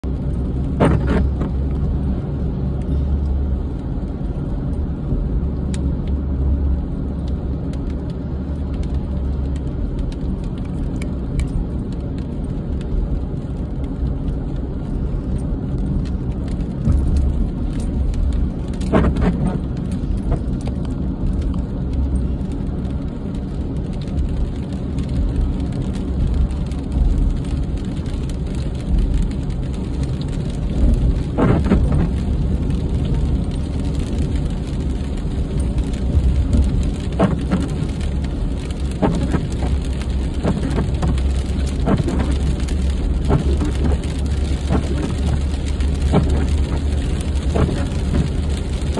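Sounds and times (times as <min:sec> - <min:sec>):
car interior rumble on wet road: 0:00.0 - 0:48.9.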